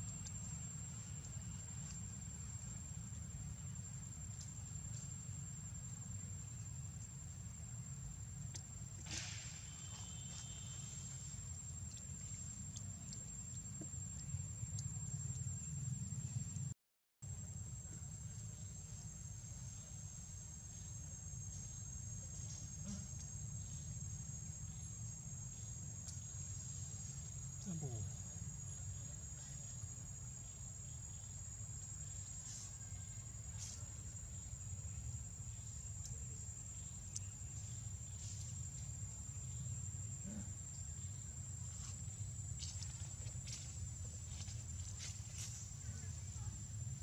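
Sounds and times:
faint ticks: 0.0s - 5.4s, 9.8s - 16.7s, 25.5s - 26.4s, 35.5s - 38.9s
insects chirring: 0.0s - 47.0s.

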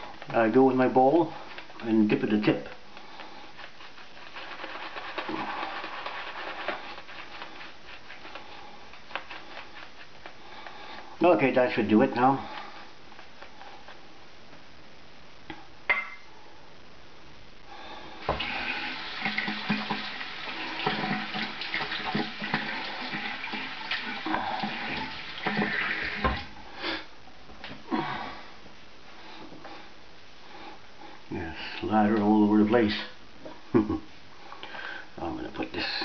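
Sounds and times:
shaving brush wet brushing: 0.0s - 14.0s, 18.4s - 26.5s.

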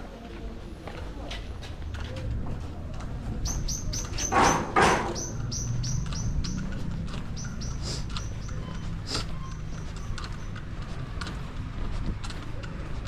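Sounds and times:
bird chirping: 3.3s - 10.6s.

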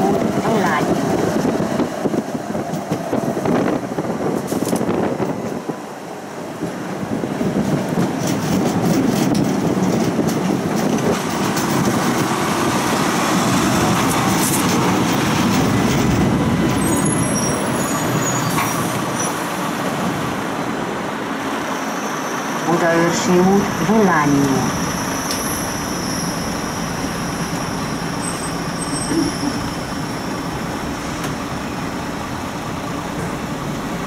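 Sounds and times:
tram running on rails: 0.0s - 34.0s
high squeaks of tram braking: 16.7s - 19.5s, 21.7s - 22.6s, 24.6s - 31.1s.

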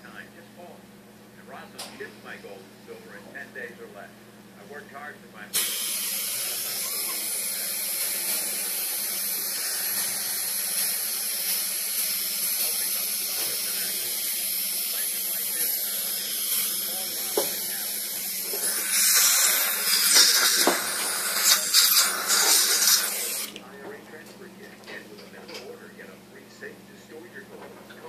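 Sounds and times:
dental suction hissing: 5.6s - 23.6s.

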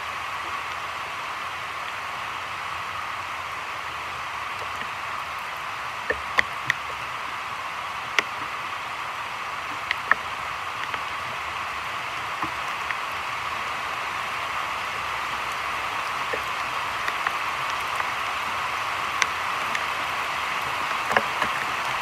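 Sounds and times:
heavy rain on water and leaves: 0.0s - 22.0s
sharp raindrop taps: 4.6s - 7.1s, 8.0s - 8.6s, 9.6s - 22.0s.

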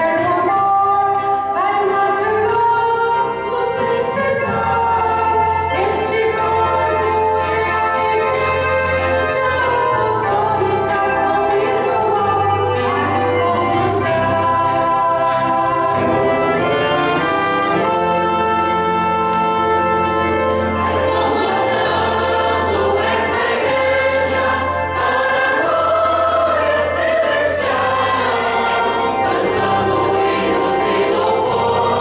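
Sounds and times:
choir singing a hymn: 0.0s - 32.0s
violins: 0.0s - 32.0s
trombones and euphonium: 2.8s - 32.0s.

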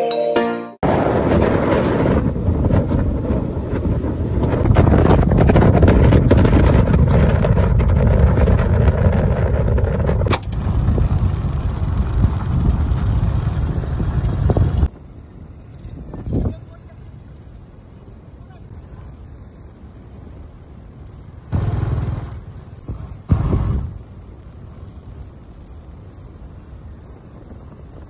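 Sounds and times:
wind buffeting microphone: 0.8s - 17.7s, 21.6s - 28.0s
motorbike engine running: 1.2s - 17.8s.

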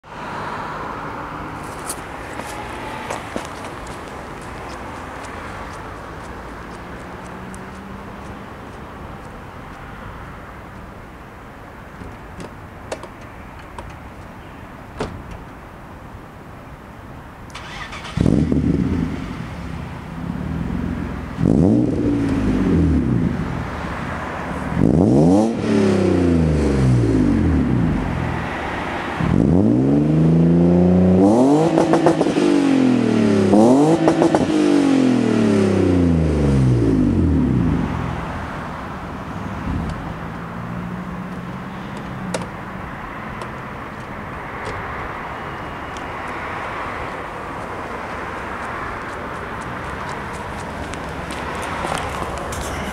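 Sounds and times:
car engine revving and idling: 17.6s - 43.8s, 47.0s - 52.9s.

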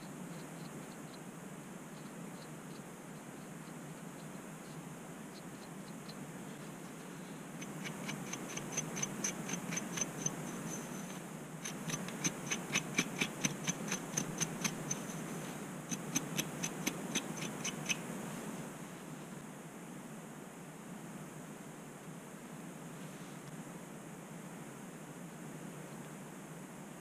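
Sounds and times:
steady low hum: 0.0s - 19.7s
scraping strokes on scalp: 7.6s - 18.5s.

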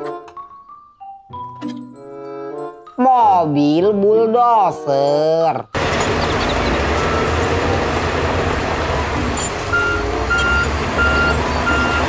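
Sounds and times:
diesel engines rumbling: 5.8s - 12.0s
reversing alarm beeping: 6.0s - 7.6s, 8.9s - 12.0s.

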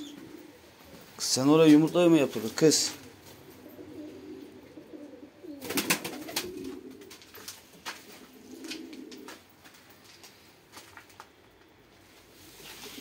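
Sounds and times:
pigeons cooing: 0.0s - 1.2s, 2.4s - 9.5s.

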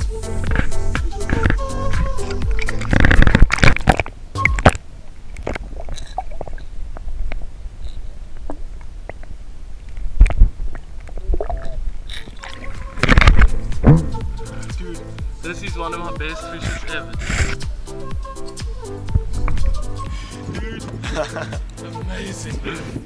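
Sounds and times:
small underwater clicks: 0.5s - 13.6s
underwater gurgling: 0.5s - 14.4s
low splash: 8.4s - 14.4s
fish splashing in water: 10.2s - 13.6s.

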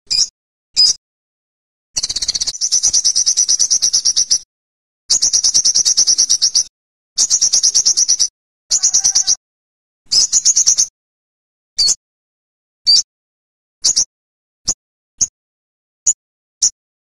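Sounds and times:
bird singing rapid trills: 2.0s - 4.5s, 5.1s - 9.4s, 10.1s - 10.9s, 13.8s - 14.1s.

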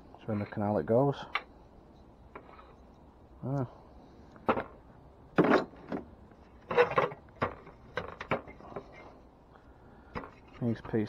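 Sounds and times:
scrap metal knocking and clanking: 5.4s - 9.1s.

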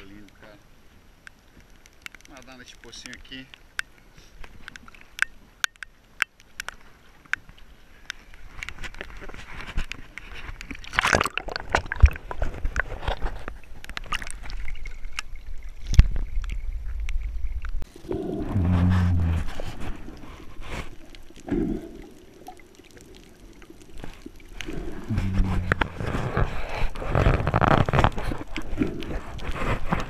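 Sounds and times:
water splashing and sloshing: 0.0s - 30.0s
underwater exhaled bubbles rumbling: 14.1s - 30.0s.

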